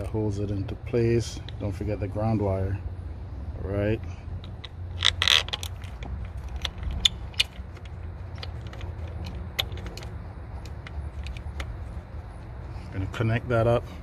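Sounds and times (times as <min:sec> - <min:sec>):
steady low hum: 0:00.0 - 0:14.0
small metal clicks and scrapes: 0:04.4 - 0:12.0.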